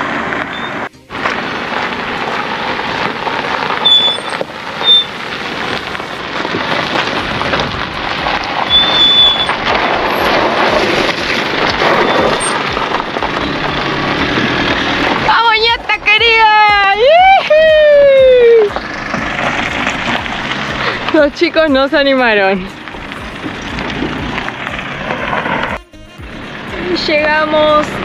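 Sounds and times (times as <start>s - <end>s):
tyres crunching on gravel: 0.0s - 28.0s
van engine running: 0.0s - 28.0s
short high squeaks: 0.5s - 0.9s, 3.8s - 5.1s, 8.7s - 9.6s, 11.8s - 12.7s.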